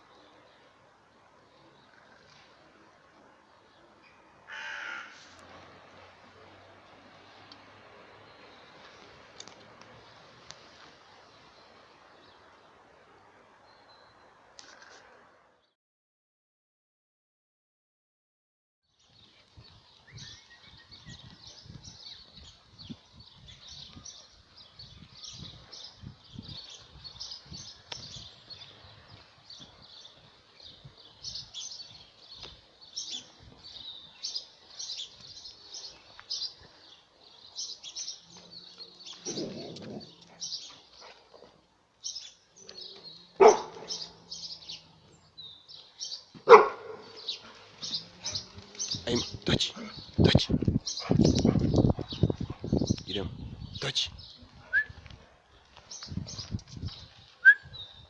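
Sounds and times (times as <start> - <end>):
small birds chirping: 18.9 - 58.0
dog barking sharply: 43.4 - 44.0, 46.5 - 47.1.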